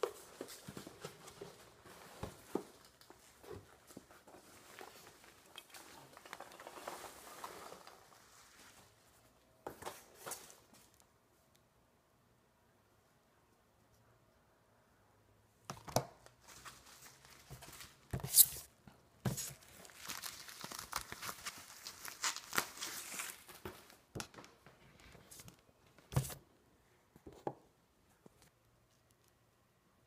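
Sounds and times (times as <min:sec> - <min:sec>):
cardboard and paper rustling: 0:00.0 - 0:11.0, 0:16.4 - 0:26.4
packing tape ripping off cardboard: 0:18.2 - 0:18.7, 0:19.3 - 0:23.7.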